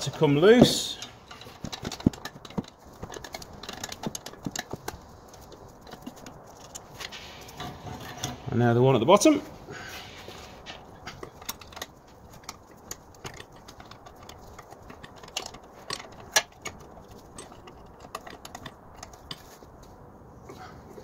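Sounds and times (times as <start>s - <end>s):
spanner clicking on bolt: 10.6s - 19.5s.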